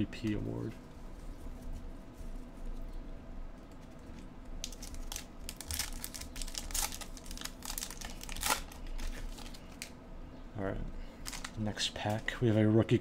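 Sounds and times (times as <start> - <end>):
card pack wrapper tearing: 4.1 - 9.9, 11.2 - 12.2.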